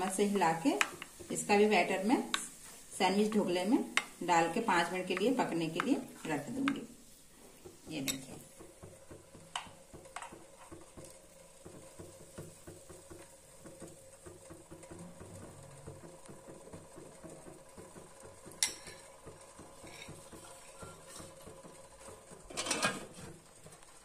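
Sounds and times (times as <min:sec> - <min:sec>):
spoon clinking on metal pot: 0:08.0 - 0:08.3, 0:18.6 - 0:19.1.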